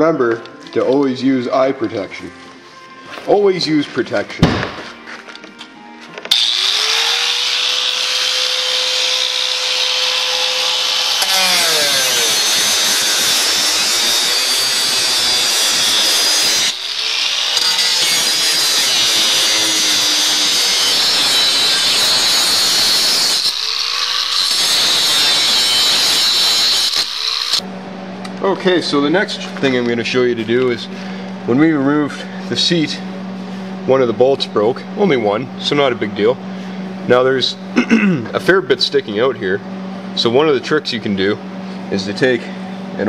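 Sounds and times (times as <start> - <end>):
angle grinder cutting metal: 6.3 - 27.6.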